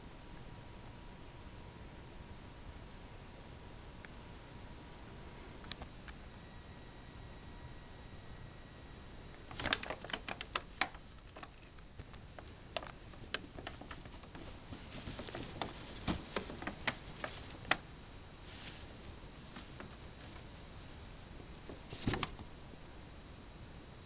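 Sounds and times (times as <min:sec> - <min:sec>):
cat toy clicks and taps on paper bag: 0:09.5 - 0:17.8, 0:21.4 - 0:22.5.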